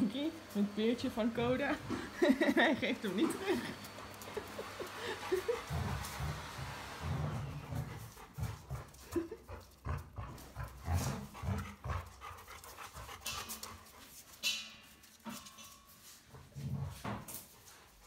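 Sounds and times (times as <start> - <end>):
dog panting: 0.8 - 14.4.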